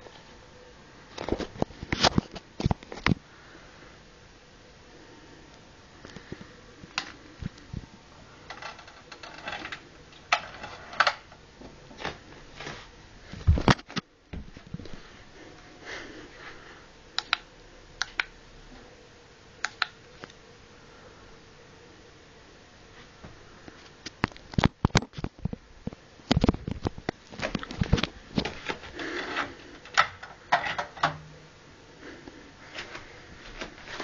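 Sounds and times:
sharp clicks: 17.2 - 18.3.

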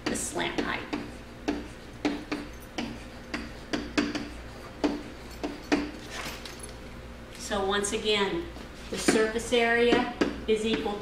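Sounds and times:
pen tapping on whiteboard: 0.6 - 5.9.

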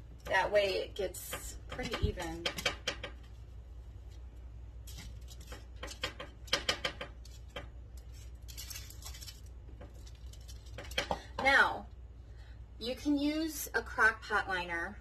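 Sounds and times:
aluminum foil rustling: 2.1 - 11.2.

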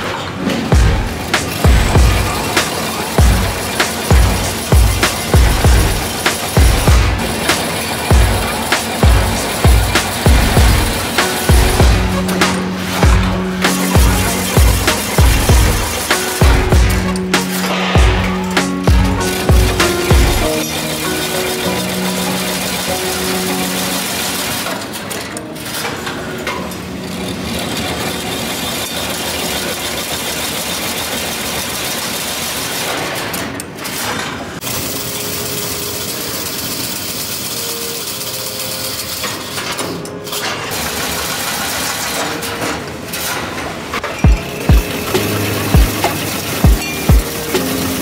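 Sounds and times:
fence machine running: 0.0 - 48.0.

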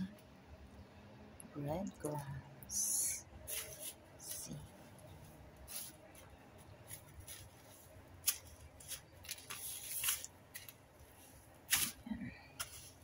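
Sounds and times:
breading rustling under fingers: 3.4 - 13.0.

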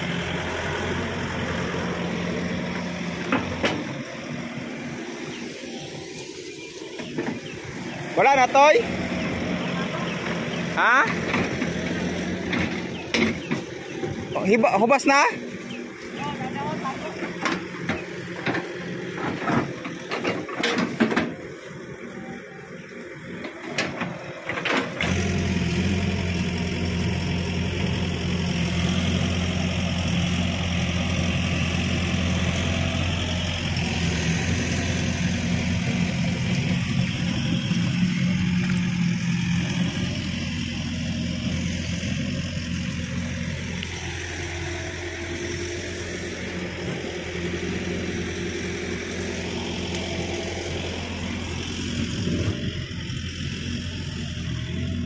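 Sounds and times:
excavator diesel engine hum: 0.0 - 55.0.

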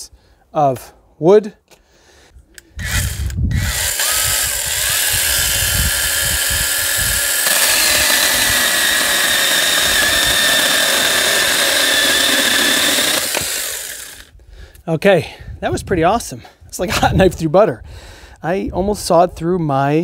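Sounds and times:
electric chainsaw whining: 2.7 - 14.3
chainsaw cutting log: 2.8 - 14.3.

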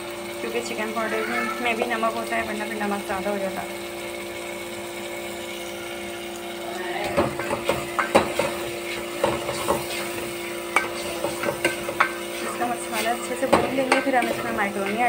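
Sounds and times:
masala sizzling in a pot: 0.0 - 15.0
spoon scraping and knocking pot: 7.0 - 15.0.

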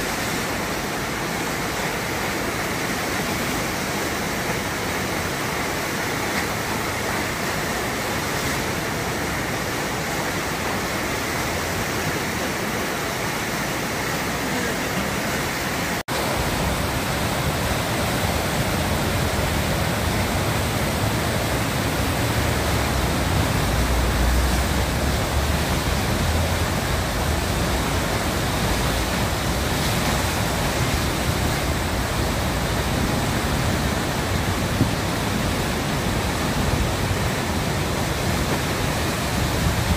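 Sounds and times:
whitewater rushing: 0.0 - 39.9.

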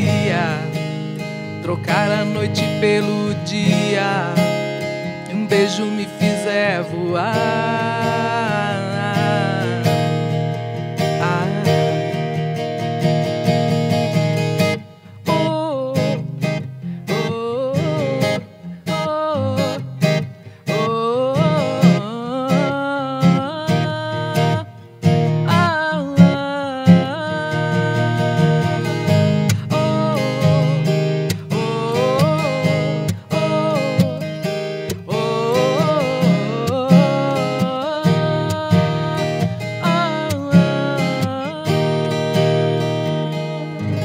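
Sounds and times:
woman singing: 0.0 - 0.8, 5.2 - 10.1, 15.2 - 16.5, 17.1 - 20.1, 20.7 - 44.0
strummed acoustic guitar: 0.0 - 44.0.

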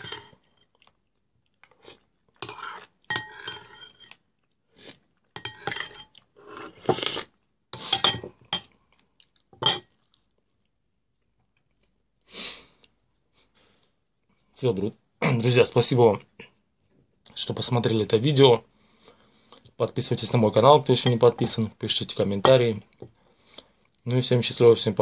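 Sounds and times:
metal spoon clinking on bowl: 0.0 - 0.4, 2.4 - 4.2, 5.4 - 6.2, 21.0 - 21.6
person chewing: 0.6 - 3.1, 4.1 - 5.4, 6.1 - 7.9, 8.7 - 12.0.

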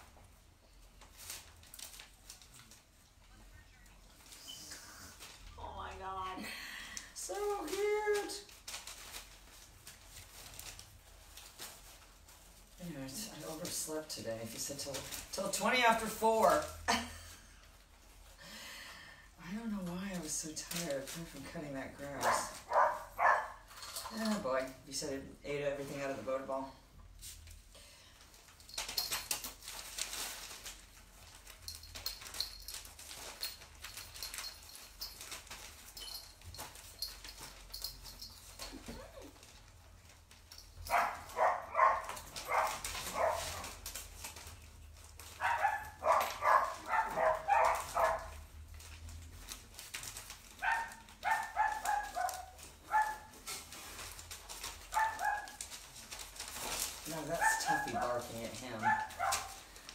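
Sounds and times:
dog yipping and grumbling: 22.2 - 23.7, 40.9 - 43.8, 45.4 - 48.4, 50.6 - 53.4, 54.8 - 55.6
faint clicking and rattling: 27.5 - 59.9.

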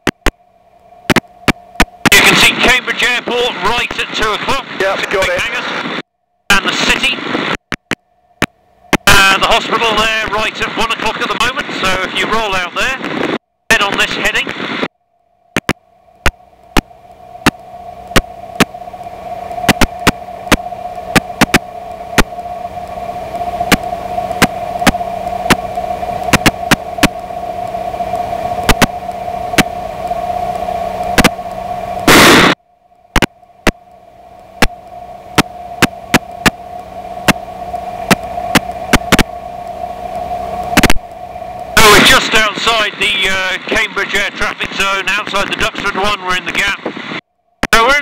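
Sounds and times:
crackling static clicks: 0.0 - 14.9, 15.5 - 48.0
constant hum tone: 0.0 - 48.0
loud burst of noise: 2.0 - 7.6, 17.4 - 33.8, 34.6 - 47.9.

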